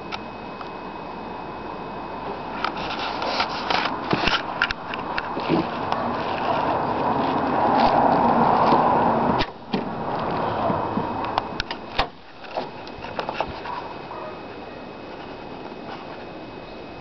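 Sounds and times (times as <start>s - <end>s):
rubbing and handling noise: 2.7s - 8.9s, 12.2s - 14.4s, 15.0s - 16.4s.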